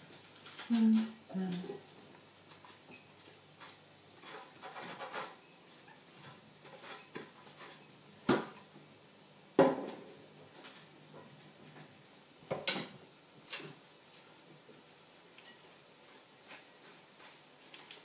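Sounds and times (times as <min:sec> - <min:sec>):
crockery and utensils clattering: 0:02.5 - 0:08.0.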